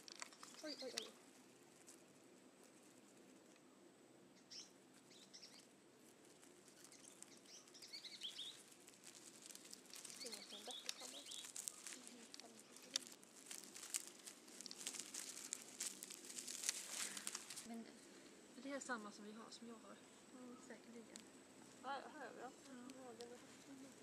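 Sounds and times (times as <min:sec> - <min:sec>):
dry leaves crackling: 0:00.0 - 0:03.6, 0:04.4 - 0:24.0
faint bird chirps: 0:00.3 - 0:01.2, 0:03.6 - 0:05.7, 0:06.6 - 0:09.2, 0:10.0 - 0:13.2, 0:19.2 - 0:21.2.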